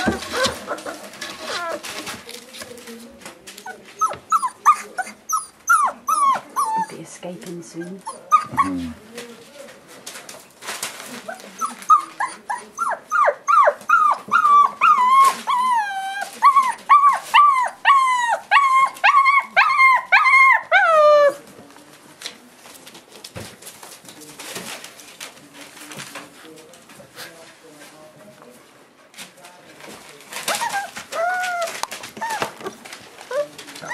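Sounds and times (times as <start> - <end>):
puppy whining: 0.0 - 2.7, 3.5 - 7.0, 7.7 - 9.0, 11.2 - 21.5, 30.3 - 33.9.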